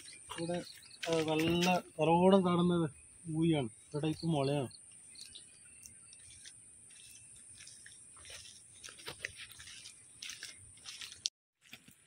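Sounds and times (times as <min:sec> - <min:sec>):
footsteps crunching on dirt path: 0:00.0 - 0:01.9, 0:05.1 - 0:12.0.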